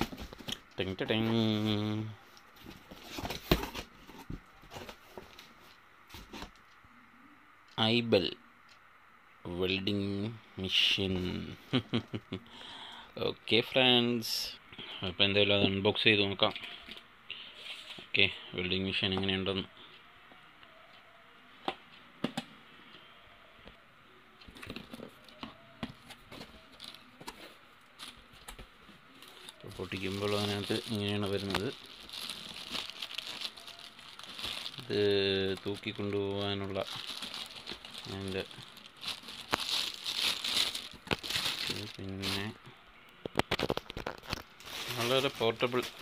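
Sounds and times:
cardboard and paper rustling: 0.0 - 1.7, 2.5 - 6.6, 24.5 - 42.6, 43.4 - 46.0
plastic bag crinkling: 29.2 - 42.6, 43.4 - 46.0.

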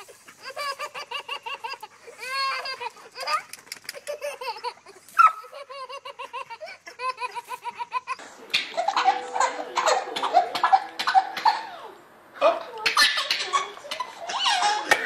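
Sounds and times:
infant belly laughter: 0.0 - 8.2, 13.1 - 15.0
toddler giggling: 0.0 - 12.0, 13.0 - 15.0.

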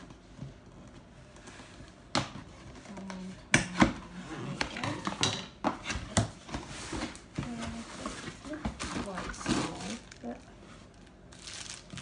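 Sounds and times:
cardboard rustling and scraping: 5.8 - 12.0.

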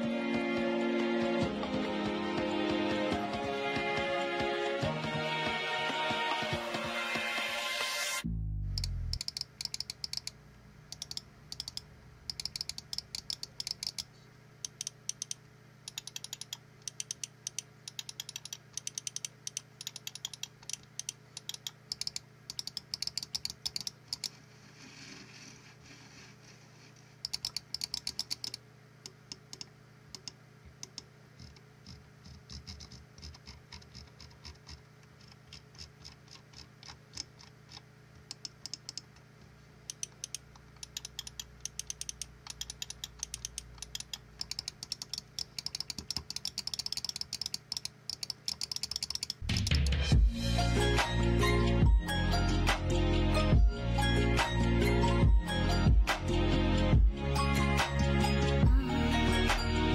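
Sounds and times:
scroll wheel ticking: 8.7 - 24.4, 27.2 - 39.1, 39.9 - 49.8
mouse buttons clicking: 8.8 - 24.4, 27.2 - 33.9, 39.9 - 49.8.

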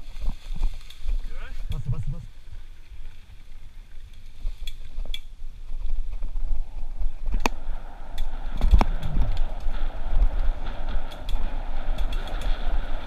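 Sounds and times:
wind rumble on microphone: 0.0 - 13.0
rushing noise: 7.6 - 13.0.

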